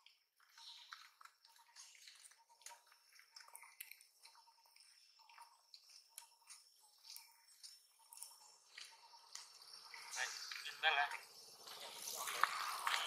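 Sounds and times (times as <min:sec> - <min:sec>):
faint chirping: 0:00.4 - 0:13.0
footsteps crackling dry leaves: 0:11.6 - 0:13.0.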